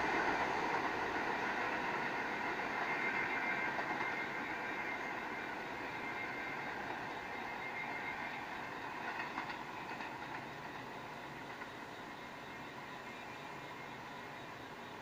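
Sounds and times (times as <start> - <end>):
subway train rumble: 0.0 - 15.0
wheel clacks over rail joints: 9.0 - 10.8.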